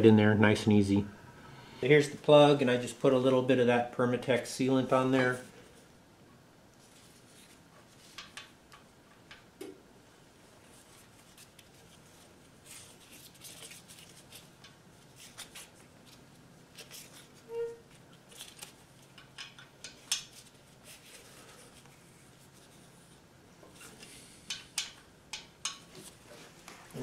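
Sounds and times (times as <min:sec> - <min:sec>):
brief squeak: 0:17.5 - 0:17.8.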